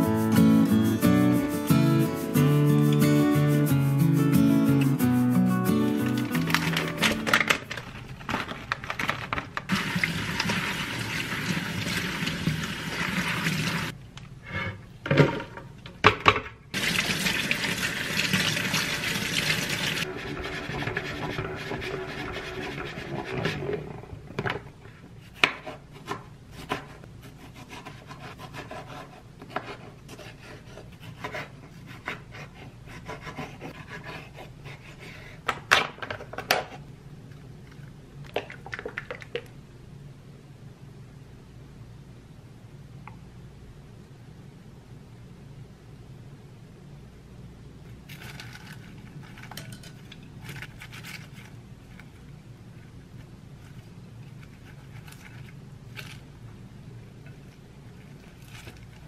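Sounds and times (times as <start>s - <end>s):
tap water running into colander: 9.7s - 13.9s, 16.8s - 23.5s.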